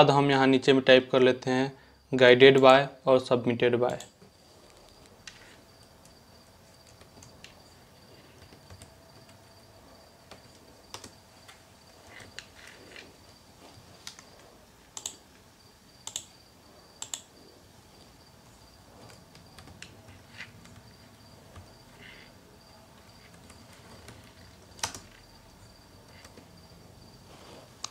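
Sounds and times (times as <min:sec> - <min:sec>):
keyboard typing: 0:03.8 - 0:09.6, 0:10.2 - 0:15.4, 0:16.0 - 0:17.4, 0:19.0 - 0:22.3, 0:22.9 - 0:25.4, 0:26.0 - 0:26.5.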